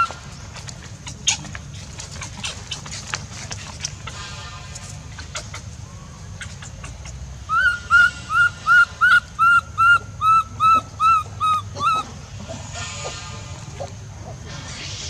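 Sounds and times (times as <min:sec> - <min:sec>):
baby macaque crying: 0:07.5 - 0:13.9.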